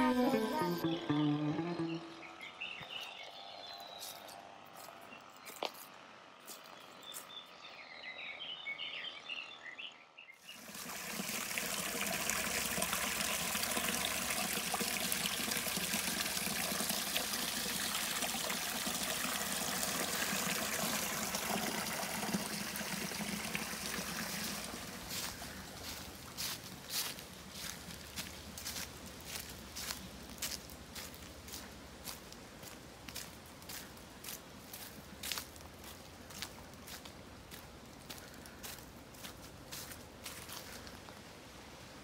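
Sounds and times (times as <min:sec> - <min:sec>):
stream trickling over rocks: 0:10.4 - 0:41.2.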